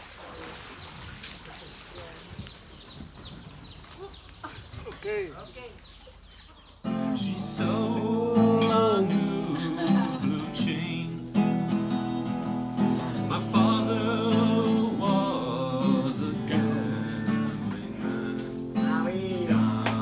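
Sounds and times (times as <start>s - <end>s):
acoustic guitar strumming: 6.8s - 20.0s
man singing: 6.9s - 11.7s, 13.1s - 20.0s.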